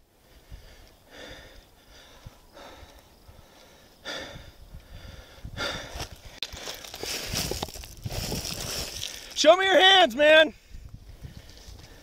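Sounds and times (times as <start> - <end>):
man breathing heavily: 0.0 - 7.6, 10.5 - 12.0.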